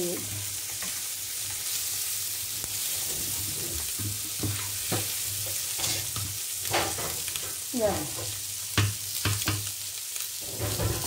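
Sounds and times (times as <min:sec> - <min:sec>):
food sizzling in oil: 0:00.0 - 0:11.0
utensil scraping and knocking pan: 0:10.4 - 0:11.0.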